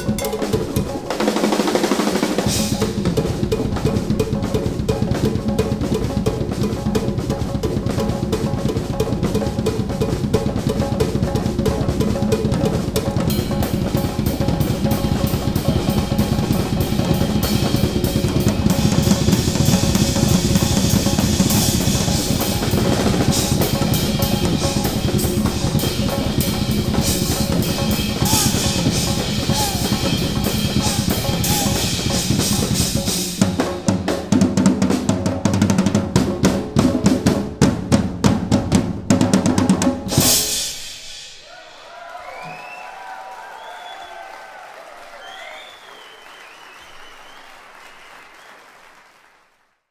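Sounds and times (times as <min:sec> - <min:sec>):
cymbals: 0:00.0 - 0:05.4, 0:11.6 - 0:33.9, 0:40.1 - 0:42.8
drum kit solo: 0:00.0 - 0:41.8.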